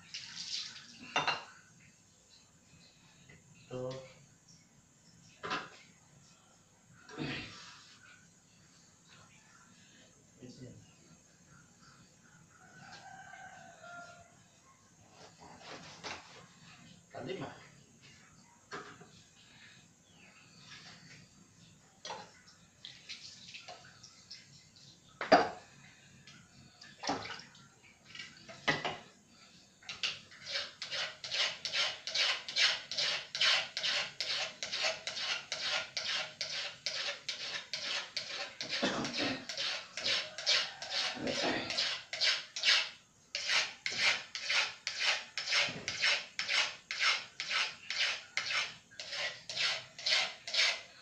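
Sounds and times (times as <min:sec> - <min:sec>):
knife scraping: 0:29.9 - 0:51.0.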